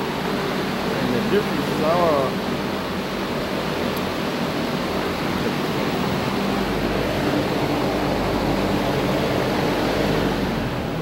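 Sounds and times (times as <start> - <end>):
machine whoosh with low hum: 0.0 - 11.0.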